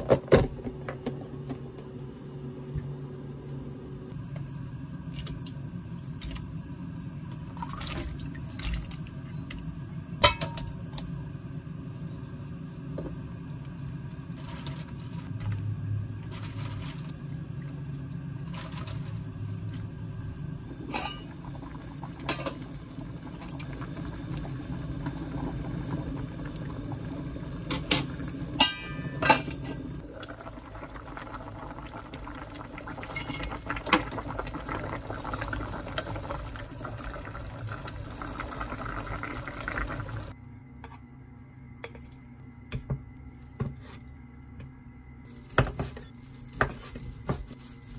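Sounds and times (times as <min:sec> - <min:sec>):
broth bubbling in a pot: 0:00.0 - 0:40.4
metal ladle clinking on pot: 0:10.2 - 0:10.6, 0:28.6 - 0:29.6.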